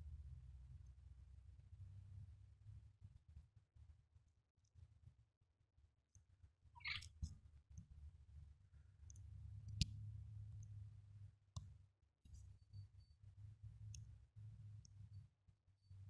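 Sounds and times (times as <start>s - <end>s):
faint low rumble: 6.8s - 16.0s.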